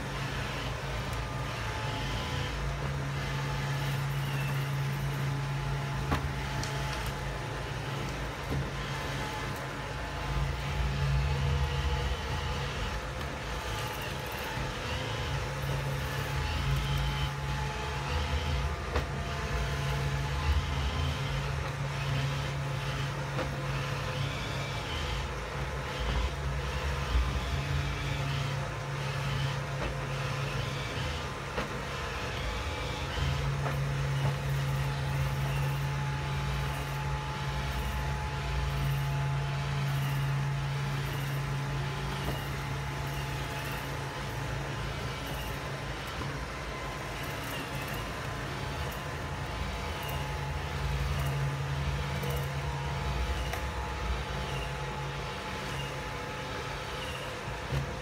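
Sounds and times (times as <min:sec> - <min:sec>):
robot vacuum motor hum: 0:00.0 - 0:58.0.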